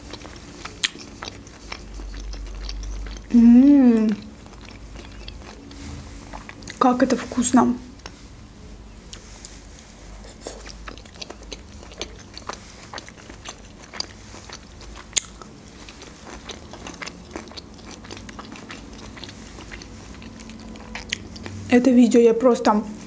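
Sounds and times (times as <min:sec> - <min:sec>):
wet chewing: 0:00.0 - 0:06.8, 0:10.2 - 0:21.6
mouth clicks and smacks: 0:00.7 - 0:03.3.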